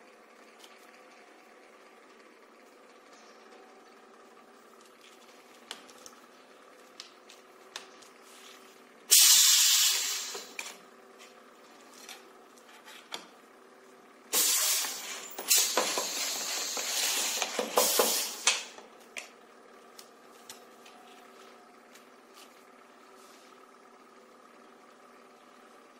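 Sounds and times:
low machine hum: 0.0 - 25.9
compressed air hissing: 9.1 - 10.6, 14.3 - 18.7.

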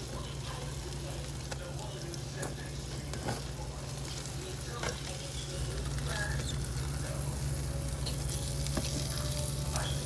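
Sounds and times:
bread sizzling in a pan: 0.0 - 10.0.

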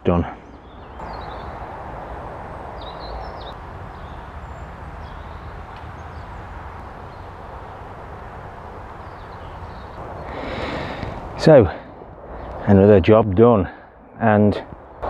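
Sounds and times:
low rumble and hiss: 0.0 - 15.0
faint bird chirps: 0.3 - 7.4.

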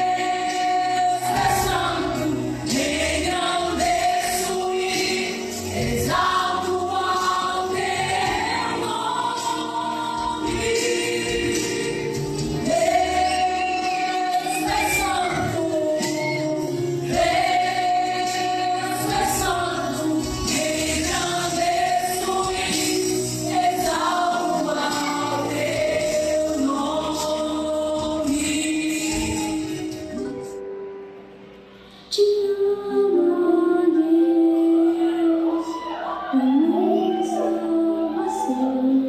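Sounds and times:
vocal group singing: 0.0 - 30.5
amplified backing music: 0.0 - 39.0.

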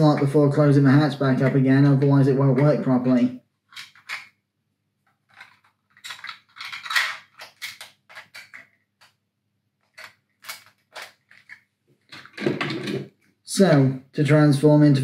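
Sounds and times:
plastic toy clicking and rattling: 3.7 - 4.3, 5.2 - 9.1, 9.8 - 11.6.

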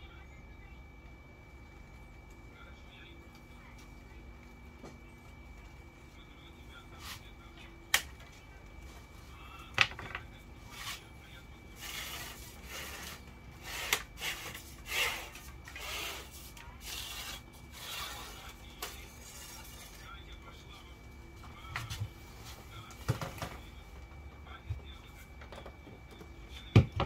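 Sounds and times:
cable rubbing and scraping on rod: 11.8 - 20.0.

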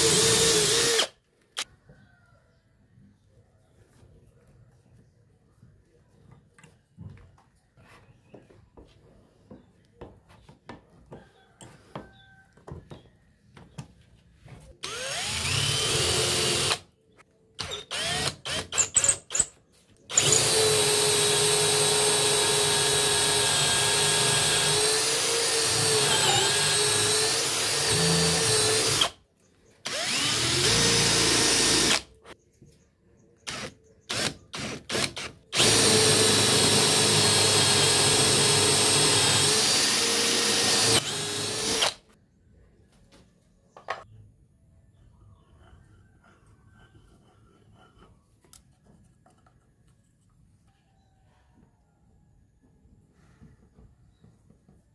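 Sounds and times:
cordless drill whining: 0.0 - 1.6, 14.8 - 16.8, 17.6 - 19.5, 20.1 - 29.2, 29.8 - 32.1, 33.5 - 42.1.

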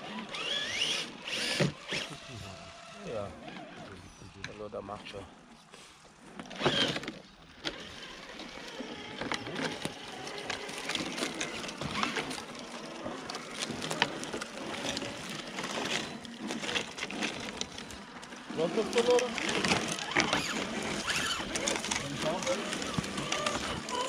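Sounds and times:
dry leaves and twigs rustling: 5.4 - 24.0.

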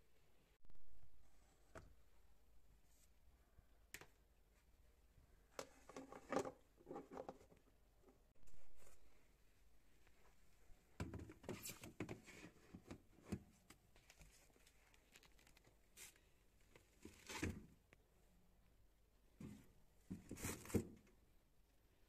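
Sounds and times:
wrapping crinkling: 14.0 - 16.2.

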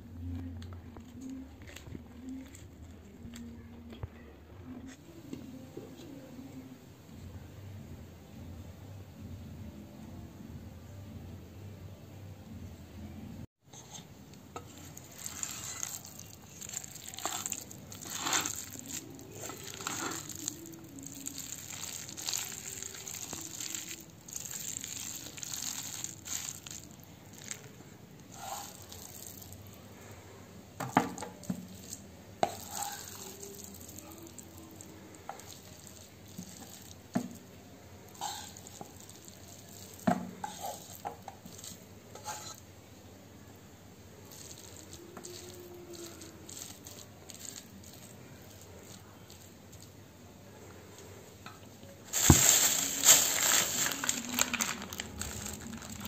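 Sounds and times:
wooden spatula scraping pan: 13.7 - 20.5, 32.4 - 33.3, 38.1 - 39.0, 40.2 - 42.6.

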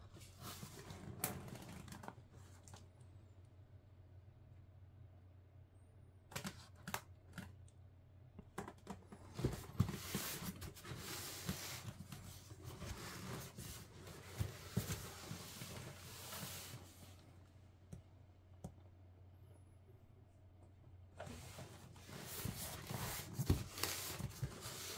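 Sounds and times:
cardboard packaging rustling: 9.1 - 17.0, 21.3 - 24.9.

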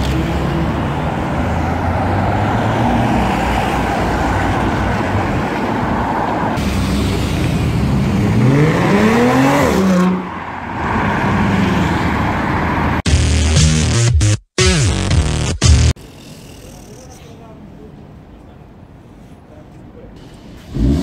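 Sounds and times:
street traffic: 0.0 - 21.0
car accelerating hard: 6.8 - 10.3.

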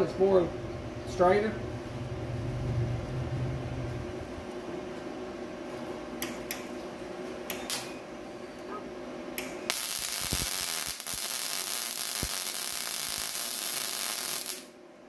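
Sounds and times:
welder humming: 9.4 - 14.8
welding arc crackling and hissing: 9.4 - 14.8.

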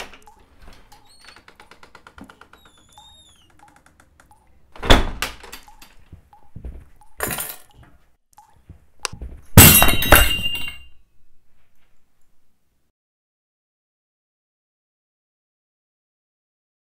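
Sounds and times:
glass breaking and objects clattering: 9.6 - 11.0.

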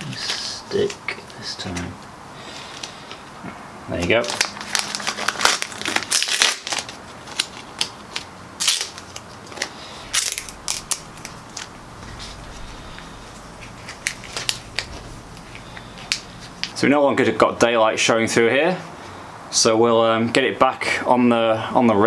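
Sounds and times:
plastic banknote crackling: 4.2 - 16.8.

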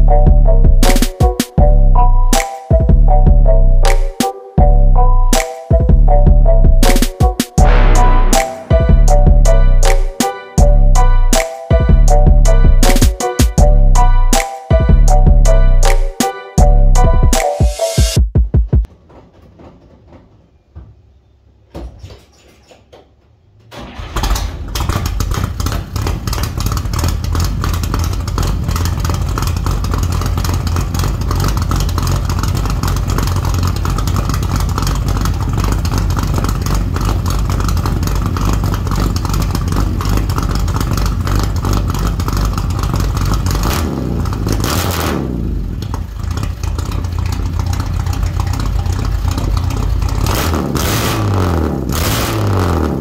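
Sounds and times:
car engine starting: 0.0 - 17.4, 23.6 - 53.0
engine revving: 6.8 - 14.1, 23.9 - 53.0
loud lumpy engine idle: 24.0 - 44.7, 45.4 - 50.4.

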